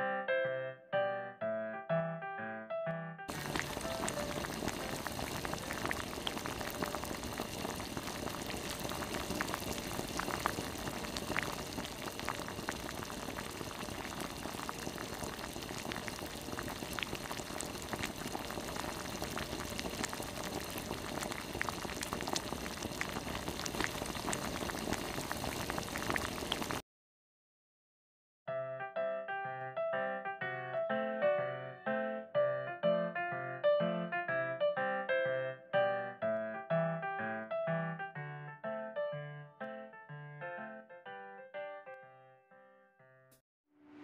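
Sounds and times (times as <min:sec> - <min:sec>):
sauce bubbling and popping: 0:03.3 - 0:26.8.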